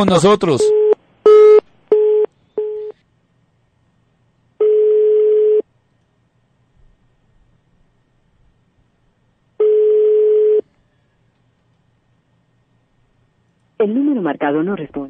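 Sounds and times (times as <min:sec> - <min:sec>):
telephone ringback tone: 0:00.7 - 0:02.9, 0:04.6 - 0:05.6, 0:09.6 - 0:10.6.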